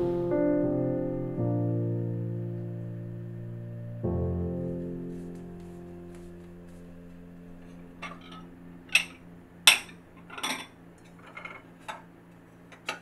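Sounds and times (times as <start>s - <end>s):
ceramic dishes clinking: 8.0s - 12.1s.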